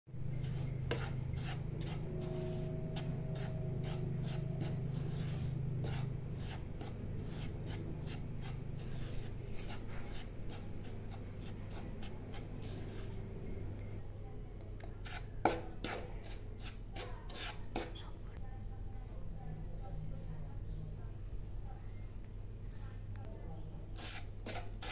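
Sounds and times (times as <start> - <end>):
low steady hum: 0.1 - 16.6
spatula scraping powder in pan: 0.2 - 13.4, 14.8 - 18.0, 23.9 - 24.9.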